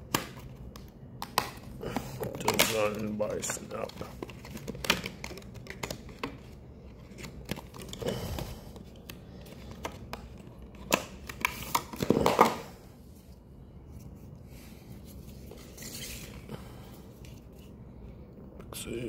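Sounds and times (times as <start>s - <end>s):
stiff plastic packaging crinkling: 2.0s - 6.4s.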